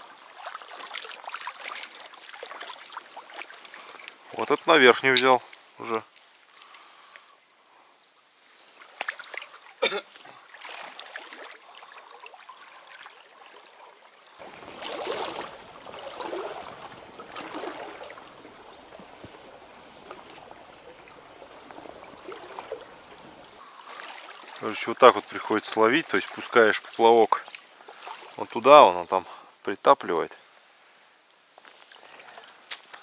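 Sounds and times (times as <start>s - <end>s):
stream water trickling: 0.0s - 29.6s, 30.6s - 33.0s.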